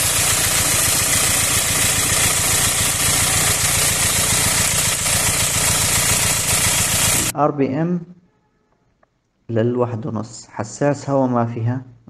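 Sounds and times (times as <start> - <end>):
diesel engine idling: 0.0 - 7.3.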